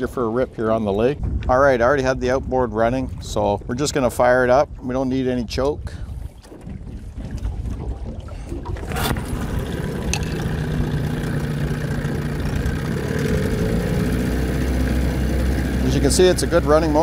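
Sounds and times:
outboard motor starting and idling: 6.5s - 17.0s.

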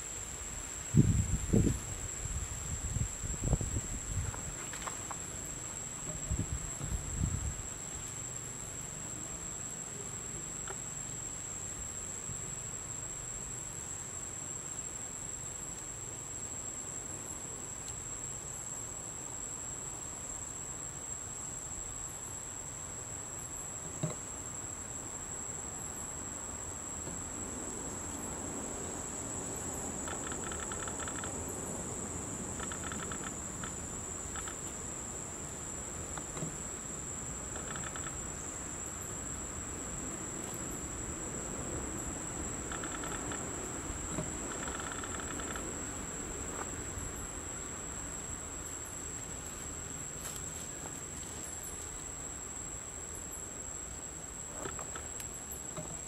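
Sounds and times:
insect rapid chirping: 0.0s - 56.0s
high-pitched insect drone: 29.1s - 41.1s, 41.9s - 49.2s.

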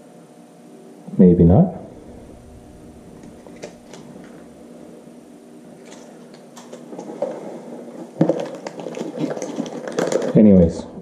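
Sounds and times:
faint steady hum: 0.0s - 11.0s
knocking and scraping of packaging: 5.8s - 10.4s.

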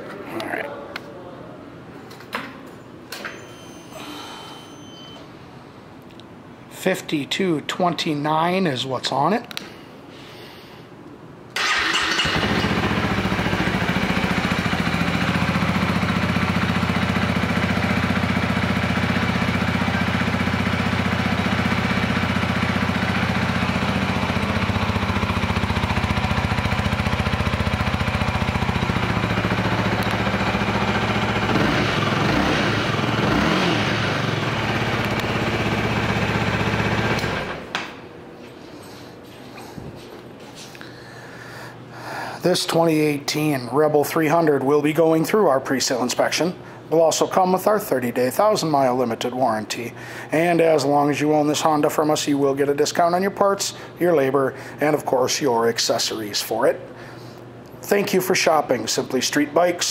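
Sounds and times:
motorcycle engine idling: 11.6s - 37.7s.

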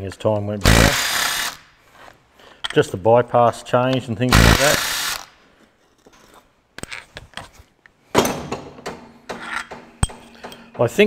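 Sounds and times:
metal tools knocking and scraping: 8.2s - 11.0s.

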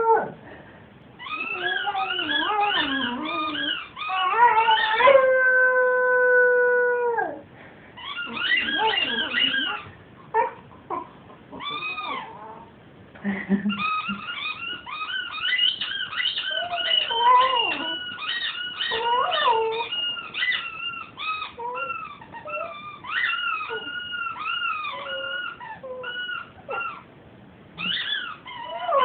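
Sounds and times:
puppy howling and whimpering: 0.0s - 0.4s, 1.2s - 7.4s, 8.0s - 12.8s, 13.8s - 27.1s, 27.8s - 29.0s
squeaky toy squeaking: 1.2s - 5.0s, 8.0s - 9.9s, 13.8s - 27.0s, 27.8s - 29.0s.

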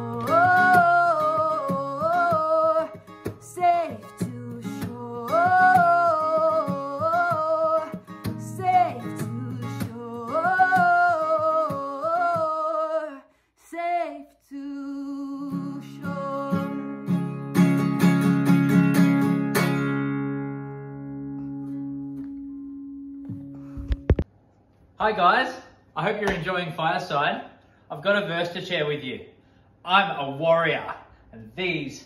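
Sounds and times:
acoustic guitar: 0.0s - 13.2s, 14.6s - 25.0s
woman singing: 0.0s - 17.4s.

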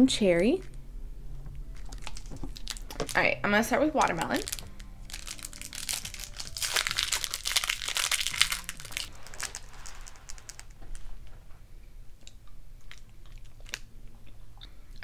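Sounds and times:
plastic candy wrapper crinkling: 1.7s - 3.3s, 3.9s - 11.1s.

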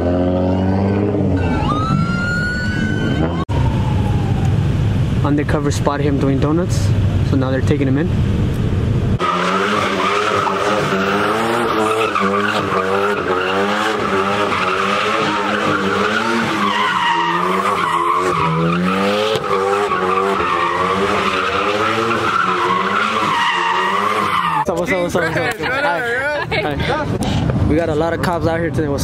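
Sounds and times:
car engine revving: 0.0s - 3.8s, 4.5s - 24.8s
tyres squealing: 9.2s - 24.8s.

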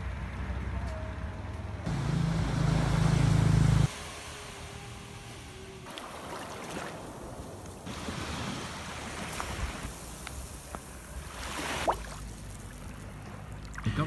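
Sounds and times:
small waves on sandy beach: 1.9s - 13.1s.

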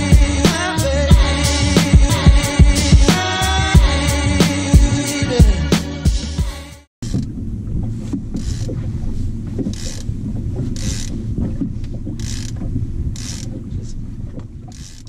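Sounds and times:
outboard motor running: 7.0s - 15.0s.

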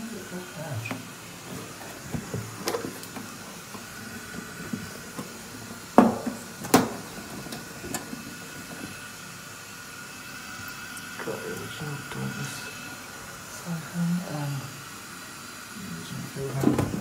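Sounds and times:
knocks on ceramic urinal: 6.0s - 7.0s.

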